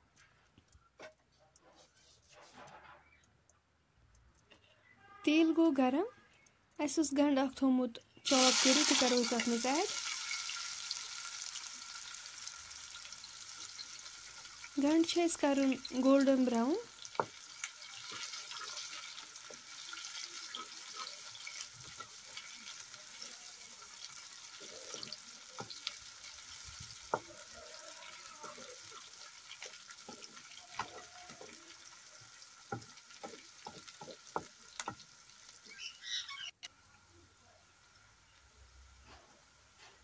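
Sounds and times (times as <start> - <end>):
onions sizzling in hot oil: 8.2 - 40.0
wooden spatula knocking a pan: 17.1 - 17.4, 27.0 - 27.5, 29.6 - 35.1.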